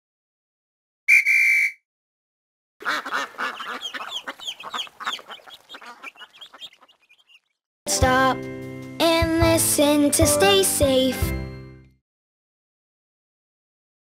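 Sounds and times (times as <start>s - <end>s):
cartoon baby chicks peeping: 2.8s - 7.6s.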